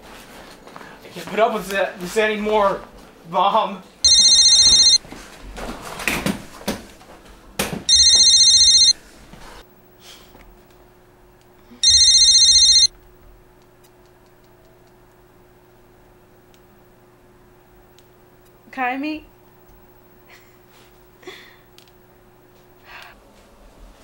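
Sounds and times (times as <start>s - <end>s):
telephone ringing: 4.0s - 5.0s, 7.9s - 9.0s, 11.8s - 12.9s.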